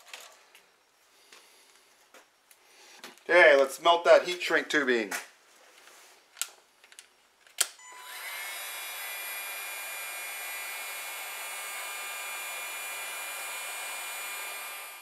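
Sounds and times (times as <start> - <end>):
heat gun fan blowing: 7.8 - 15.0.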